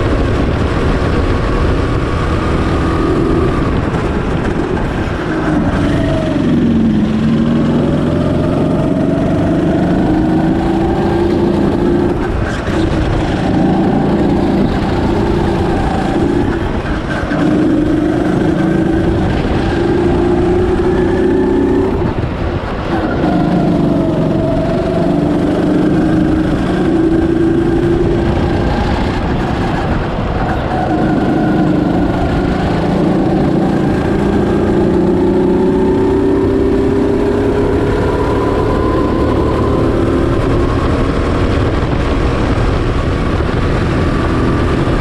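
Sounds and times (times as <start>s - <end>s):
go-kart engine revving: 0.0s - 45.0s.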